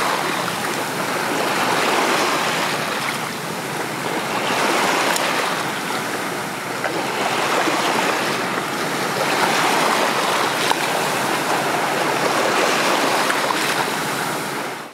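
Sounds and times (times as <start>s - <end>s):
small waves washing on shore: 0.0s - 14.9s.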